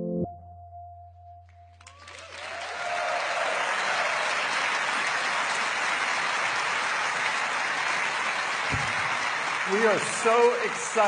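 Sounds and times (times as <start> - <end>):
background music: 0.0 - 1.8
large audience applauding: 1.8 - 11.0.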